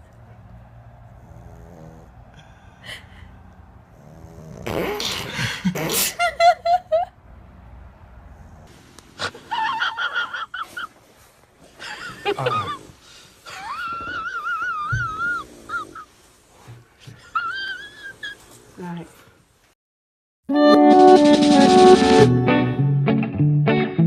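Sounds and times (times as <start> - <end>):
puppy snorting breaths: 0.3 - 5.7
puppy whimpering: 13.6 - 16.0.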